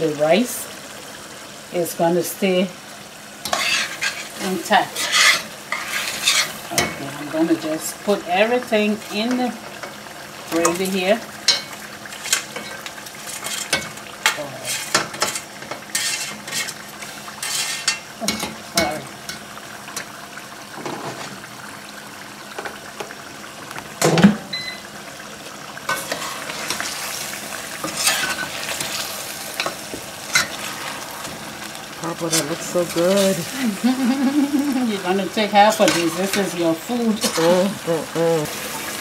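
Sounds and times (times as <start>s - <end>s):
stew sizzling: 0.0s - 39.0s
metal spoon scraping a pan: 3.4s - 7.1s, 10.6s - 19.4s, 25.9s - 31.4s, 32.1s - 33.5s, 35.6s - 37.7s.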